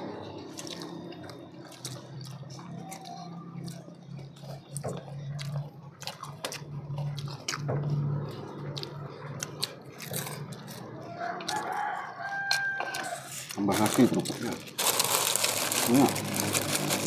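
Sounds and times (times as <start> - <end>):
steady low hum: 0.0 - 11.4
chewing: 0.0 - 17.0
crunching crackers: 0.0 - 17.0.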